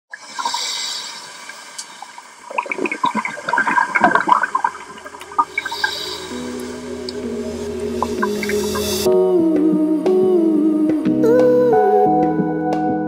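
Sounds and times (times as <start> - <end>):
gurgling exhaled bubbles: 0.1 - 9.1
diver inhaling through regulator: 0.5 - 2.0, 5.2 - 9.1
music with low tones: 4.3 - 13.0.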